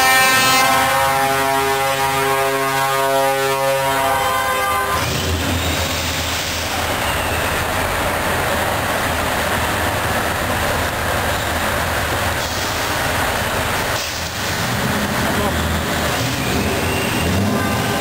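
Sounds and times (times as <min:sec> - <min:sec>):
truck air horns chord: 0:00.0 - 0:05.2, 0:16.4 - 0:18.0
truck engine rumble: 0:00.0 - 0:18.0.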